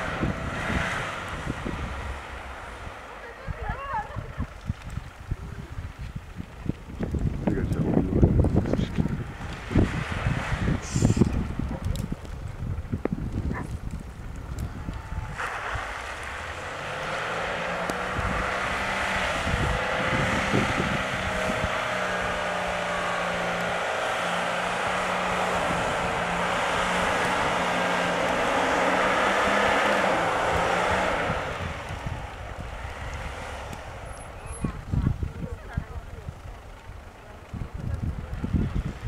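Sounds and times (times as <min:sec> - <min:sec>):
car engine running hard: 0:00.0 - 0:39.0.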